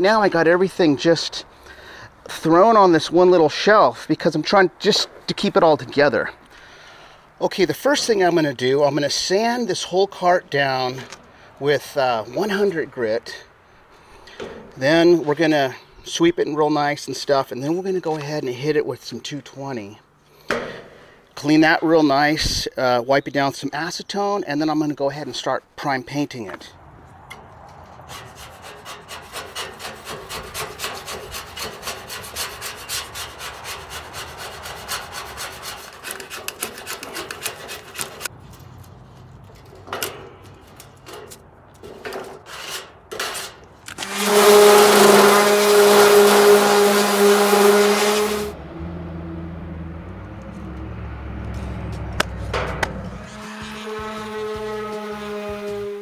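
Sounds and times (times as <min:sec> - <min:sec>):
hand rubbing steel rail: 0:27.7 - 0:48.6, 0:51.5 - 0:56.0
electric sander on steel: 0:28.1 - 0:38.3, 0:43.9 - 0:48.6, 0:53.0 - 0:56.0.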